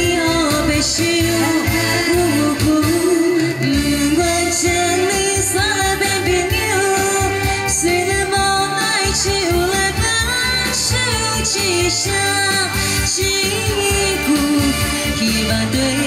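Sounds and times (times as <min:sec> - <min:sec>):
backing track with bass beat: 0:00.0 - 0:16.0
woman singing into microphone: 0:00.0 - 0:16.0.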